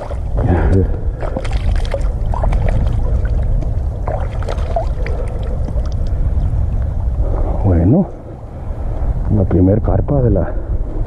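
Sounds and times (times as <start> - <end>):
water splashing around hands: 0.0 - 6.2
steady low rumble: 0.0 - 11.0.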